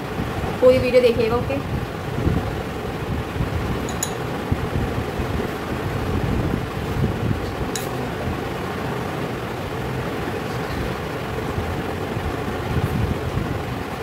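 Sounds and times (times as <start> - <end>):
fan whirring hum: 0.0 - 14.0
brush clinking glass bowl: 3.8 - 4.2.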